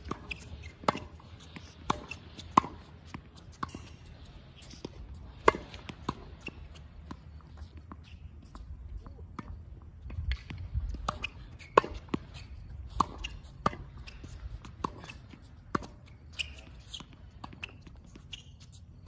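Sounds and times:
tennis balls struck with racquets: 0.0 - 7.3, 10.3 - 16.4
tennis balls bouncing on court: 0.0 - 18.7.

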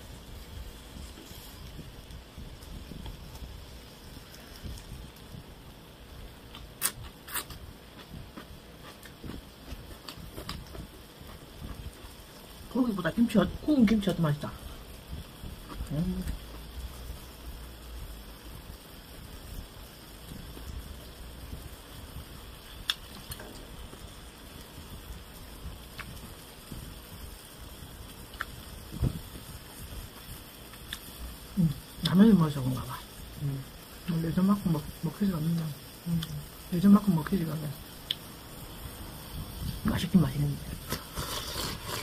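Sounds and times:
meat sizzling on a grill pan: 0.0 - 6.8, 8.5 - 42.0
person chewing: 6.5 - 12.0, 40.8 - 42.0.

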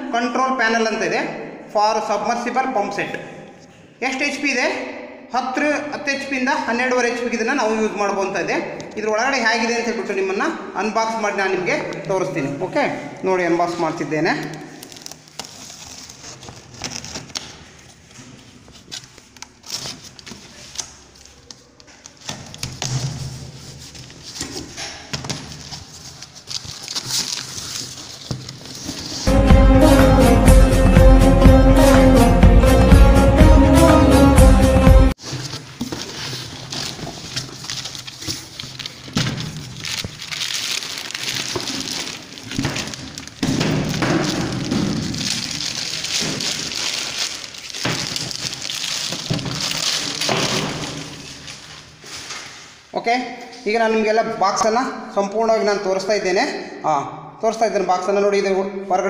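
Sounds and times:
packing tape being torn: 14.4 - 17.7, 35.3 - 51.6
cardboard and plastic wrap rustling: 14.4 - 29.3, 35.2 - 52.8.

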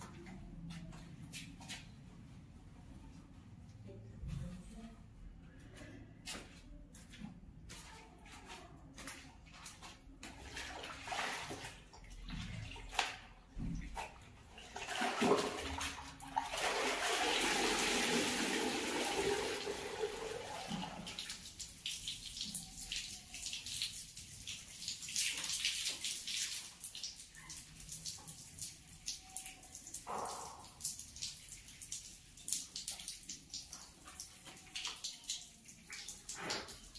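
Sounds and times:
water splashing in buckets: 7.8 - 36.9
water dripping: 9.0 - 36.9
water pouring off garment: 10.4 - 36.9.

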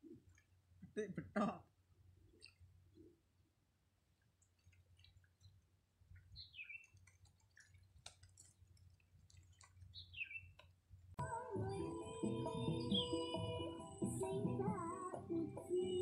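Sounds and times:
bird chirps: 6.3 - 7.0, 9.9 - 10.6
small clicks: 6.7 - 10.8
background music: 11.2 - 16.0.

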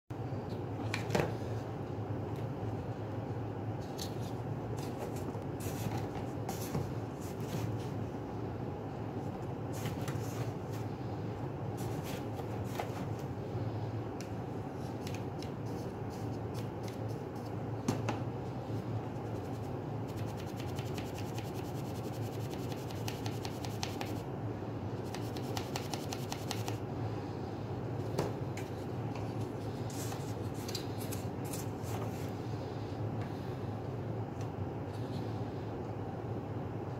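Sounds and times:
steady low hum: 0.1 - 36.9.

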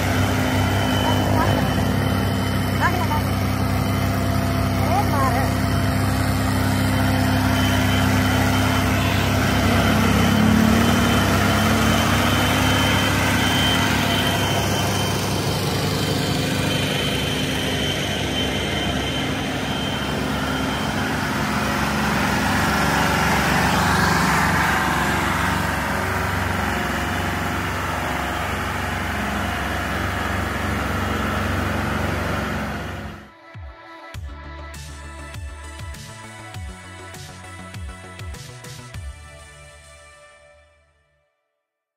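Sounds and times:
tractor diesel engines under load: 0.0 - 33.3.

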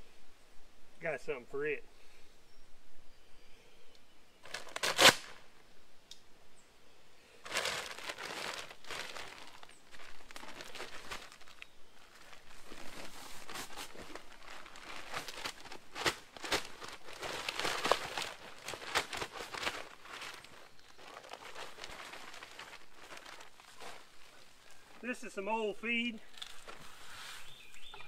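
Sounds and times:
paper sack ripping: 4.4 - 5.4, 7.4 - 24.4
sack crinkling and rustling: 4.4 - 5.4, 7.4 - 25.3, 26.2 - 28.0.

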